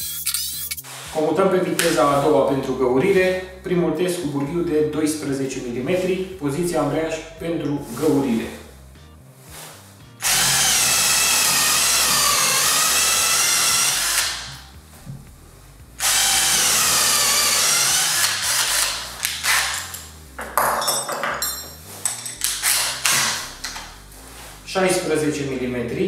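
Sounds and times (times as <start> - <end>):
cordless drill whining into wood: 10.2 - 14.7, 16.0 - 20.0, 22.4 - 23.8.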